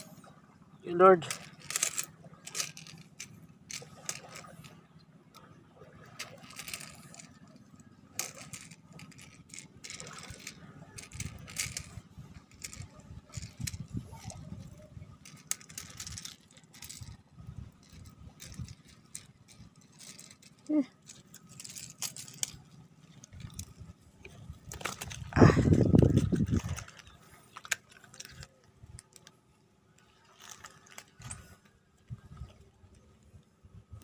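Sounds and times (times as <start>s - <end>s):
fishing lure clicks and rattles: 1.2s - 29.4s, 30.0s - 33.0s
rustling: 30.0s - 33.2s.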